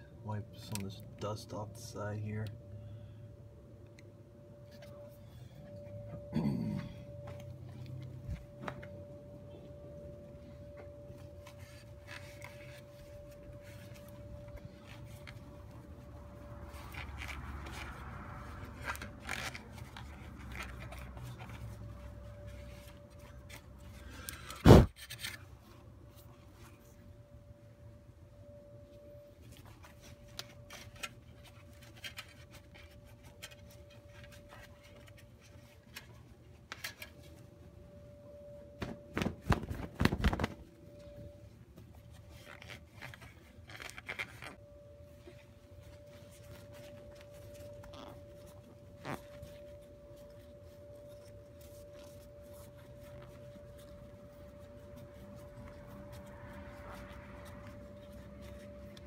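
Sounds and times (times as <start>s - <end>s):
small clicks and scrapes: 10.8s - 25.6s, 29.4s - 37.4s, 41.9s - 44.6s.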